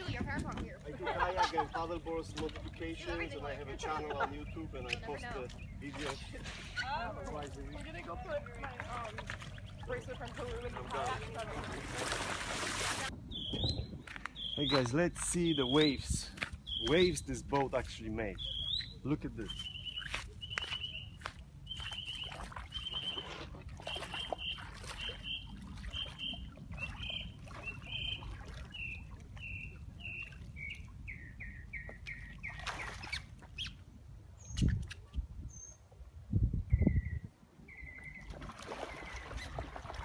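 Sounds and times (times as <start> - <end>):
bird whistling call: 15.4 - 16.0, 18.4 - 33.8, 36.7 - 38.3.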